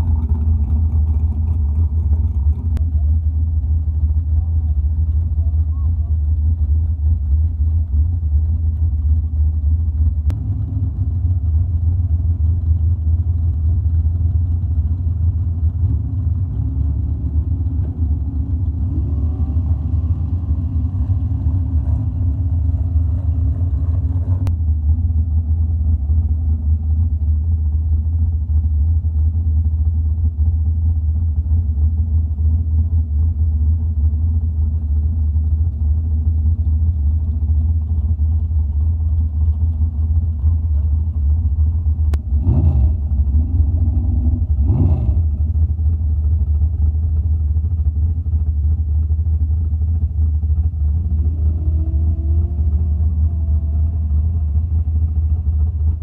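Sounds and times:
truck engines rumbling: 0.0 - 56.0
truck engine revving up: 15.8 - 24.5, 42.2 - 45.6, 51.0 - 55.1.

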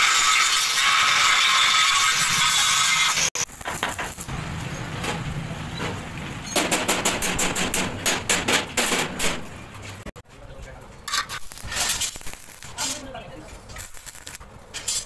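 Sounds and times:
angle grinder cutting steel: 0.0 - 4.3
sharp clicks and knocks: 5.0 - 10.1.

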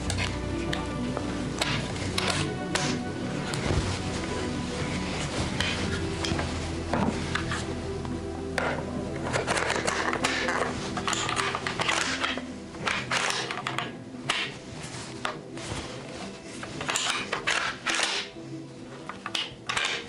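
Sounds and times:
background music: 0.0 - 20.0
rifle metal clicks and rattles: 9.3 - 14.5, 16.8 - 18.3.

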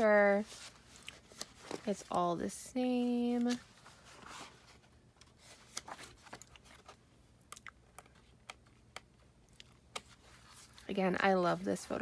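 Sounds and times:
paper pages rustling: 0.4 - 2.2, 3.0 - 7.0.

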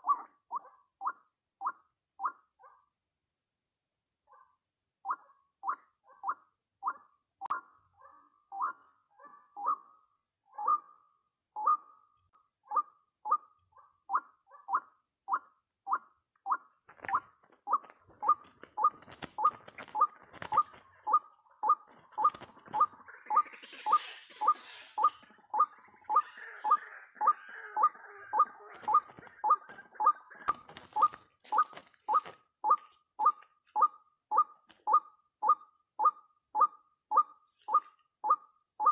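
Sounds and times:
wing flapping and thrashing: 16.9 - 21.1, 21.9 - 23.2, 28.6 - 32.3.

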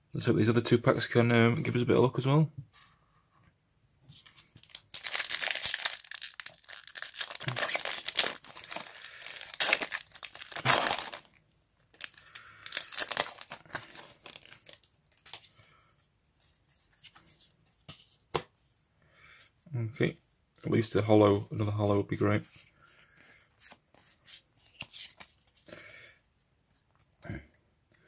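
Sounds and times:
cards rustling: 4.1 - 15.6, 23.6 - 25.7
foil wrapper crinkling and tearing: 4.6 - 15.4.

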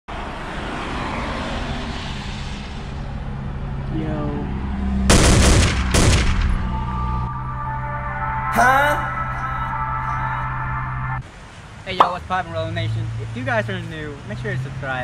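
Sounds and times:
loud bangs: 5.1 - 6.8.

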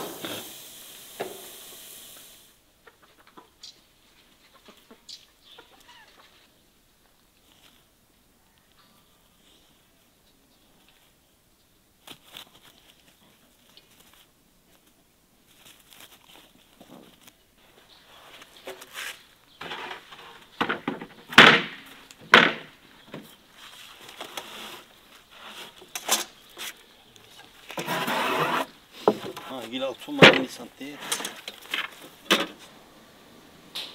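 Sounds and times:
plank scraping across boards: 18.3 - 23.3, 24.1 - 26.8, 27.7 - 32.7
boards clunking down: 19.6 - 23.3, 27.8 - 29.5, 30.1 - 32.7
wooden planks knocking: 20.6 - 23.3, 30.1 - 30.6.

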